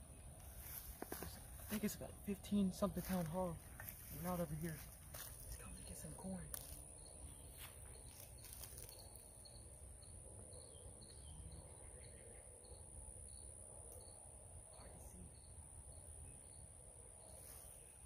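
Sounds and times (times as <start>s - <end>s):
high insect drone: 0.0s - 18.0s.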